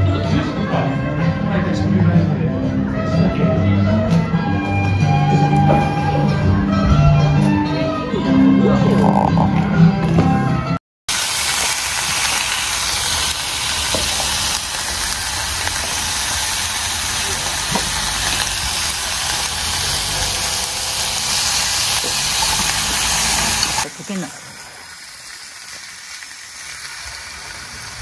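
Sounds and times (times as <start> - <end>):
sizzling hiss: 11.1 - 28.0.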